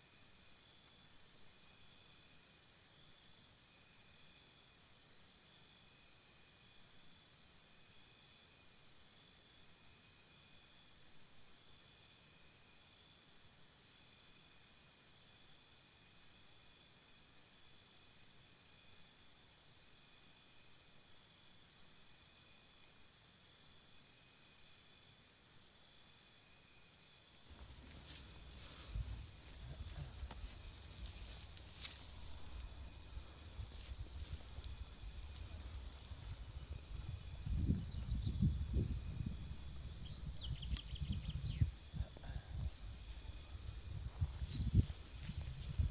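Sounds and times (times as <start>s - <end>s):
crickets chirping: 0.0s - 45.9s
wind rumble on microphone: 28.4s - 45.9s.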